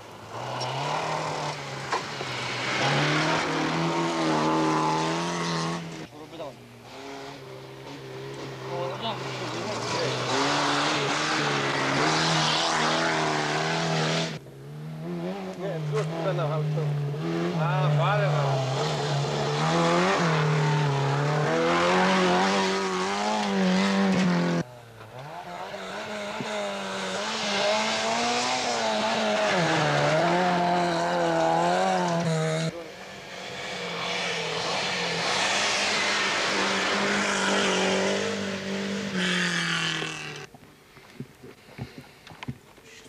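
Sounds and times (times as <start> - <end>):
rally car engines revving: 0.0 - 40.5.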